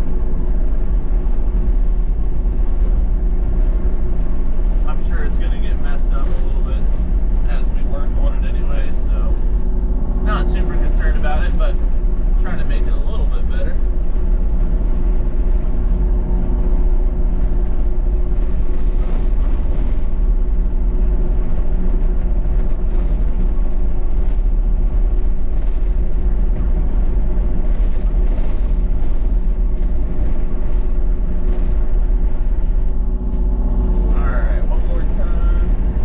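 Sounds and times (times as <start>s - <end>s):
excavator diesel engine drone: 0.0s - 36.0s.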